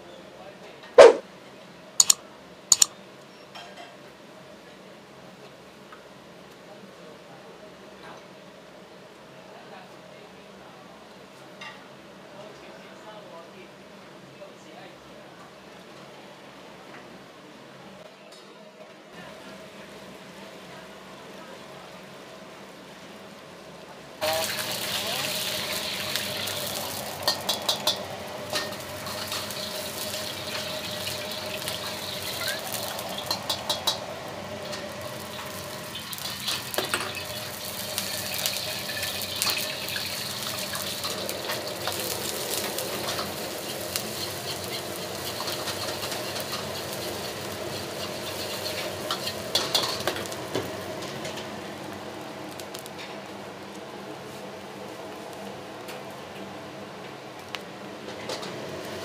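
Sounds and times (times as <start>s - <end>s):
tap water running: 24.2s - 50.7s
egg sizzling in oil: 24.2s - 51.4s.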